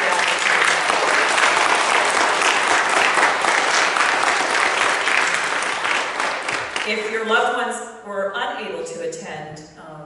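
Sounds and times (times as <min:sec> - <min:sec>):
people clapping: 0:00.0 - 0:07.2.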